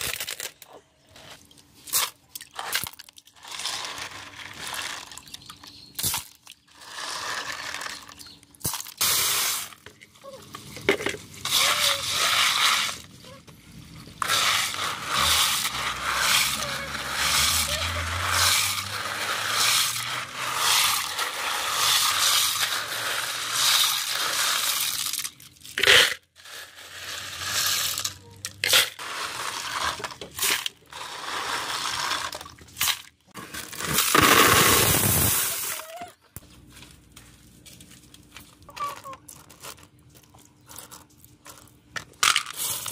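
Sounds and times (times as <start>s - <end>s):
clams poured into plastic basin: 0.0s - 0.6s, 1.8s - 5.4s, 6.0s - 9.8s, 10.6s - 13.1s, 14.2s - 35.8s, 40.7s - 42.9s.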